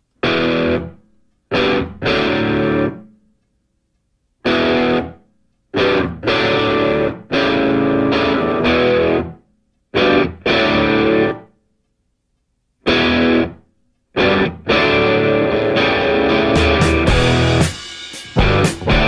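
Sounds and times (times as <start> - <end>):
distorted electric guitar stabs: 0.2 - 0.9, 1.5 - 3.0, 4.4 - 5.1, 5.8 - 9.3, 10.0 - 11.4, 12.9 - 13.6, 14.2 - 19.0.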